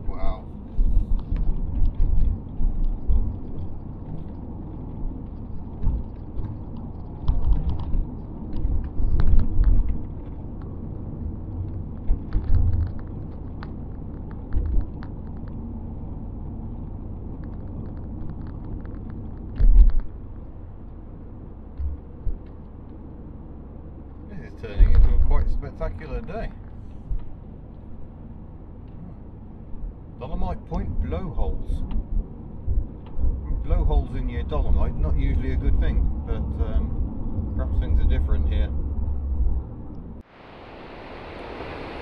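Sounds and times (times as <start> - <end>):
road and engine rumble: 0.0 - 42.0
light clicks and rattles: 0.6 - 23.3.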